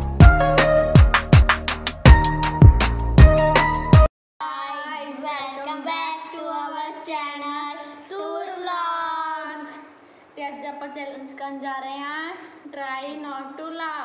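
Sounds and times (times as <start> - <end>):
girls singing unaccompanied: 4.5 - 9.8.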